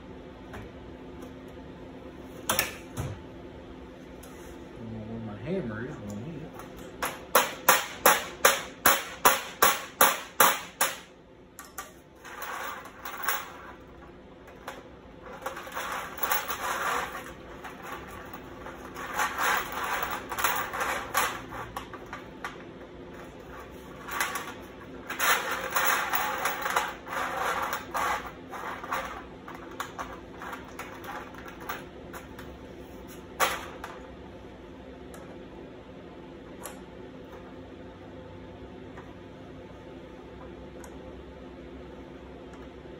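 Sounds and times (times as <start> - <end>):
chain clinking on steel sheet: 14.6 - 22.2, 23.2 - 32.3.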